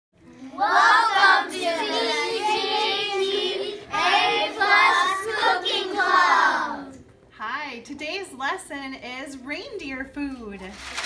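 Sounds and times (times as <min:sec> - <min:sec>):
children singing in unison: 0:00.5 - 0:07.0.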